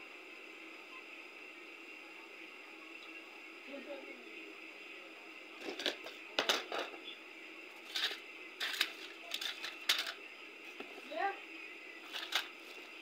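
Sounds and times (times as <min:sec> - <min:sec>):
steady background hum: 0:00.0 - 0:13.0
objects clattering in drawers: 0:07.9 - 0:10.2.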